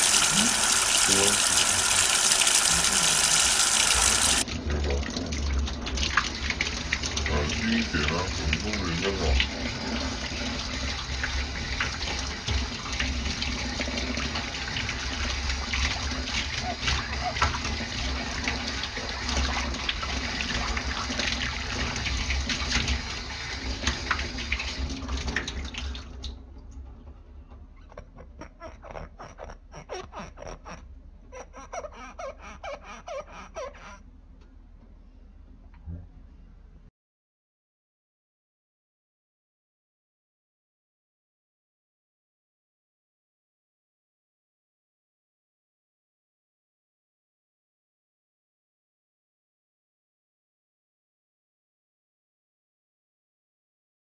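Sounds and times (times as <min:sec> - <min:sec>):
tap water pouring on dish: 0:00.0 - 0:26.4
fingertips squeaking on wet plate: 0:27.8 - 0:34.0.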